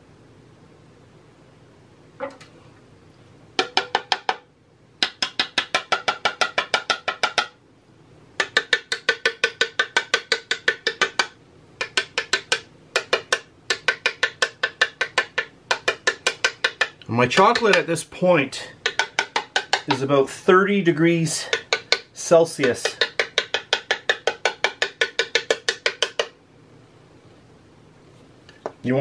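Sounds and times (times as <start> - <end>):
metal scraper tapping plastic mould: 3.6 - 7.6, 8.4 - 17.9, 18.8 - 20.1, 21.4 - 26.4.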